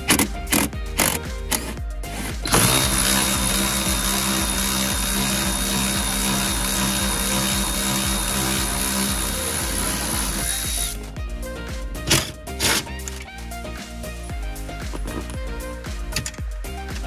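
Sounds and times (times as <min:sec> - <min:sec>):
cordless ratchet motor running: 0:00.0 - 0:11.1.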